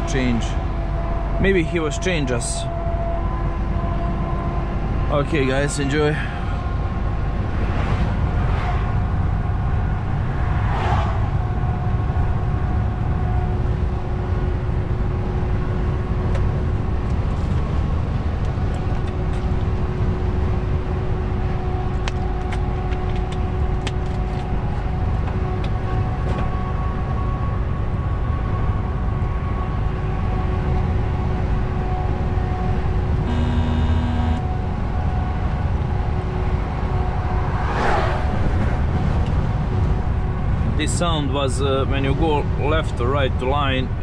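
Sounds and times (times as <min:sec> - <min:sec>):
truck engine rumble: 0:00.0 - 0:37.6
faint steady whine: 0:33.2 - 0:34.5.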